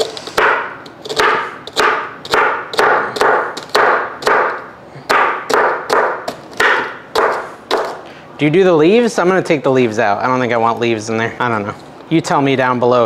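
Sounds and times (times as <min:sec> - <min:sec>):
knife chopping celery on a board: 0:00.0 - 0:08.0.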